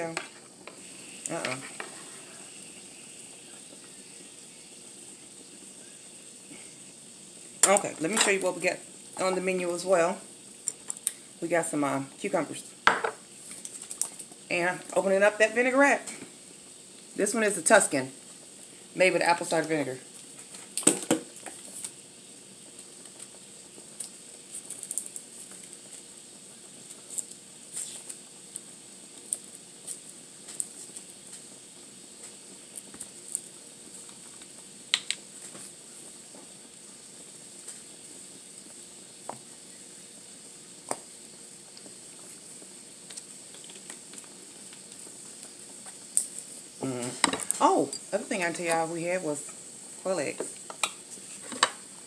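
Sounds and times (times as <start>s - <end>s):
faint steady hiss: 0.0s - 52.0s.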